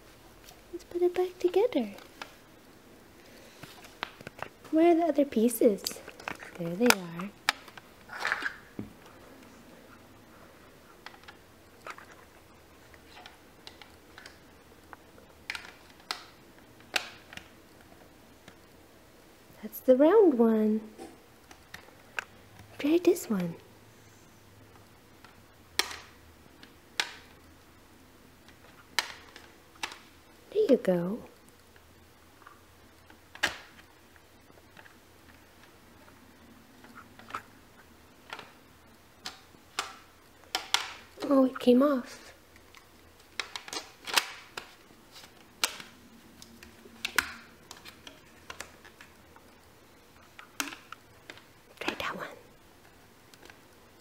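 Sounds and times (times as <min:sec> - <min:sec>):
plastic pieces clicking: 0:05.8 - 0:08.7, 0:11.0 - 0:18.6, 0:25.2 - 0:27.4, 0:28.5 - 0:30.1, 0:39.2 - 0:41.3, 0:42.5 - 0:51.6
plastic pieces clicking on toy: 0:25.8 - 0:27.3.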